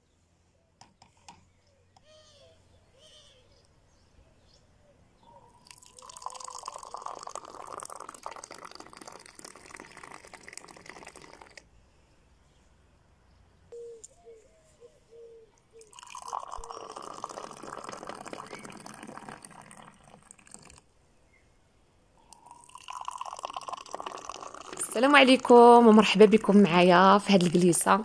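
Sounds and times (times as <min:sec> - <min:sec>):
tea pouring into a glass: 0:05.6 - 0:11.6, 0:15.8 - 0:20.8, 0:22.3 - 0:25.5.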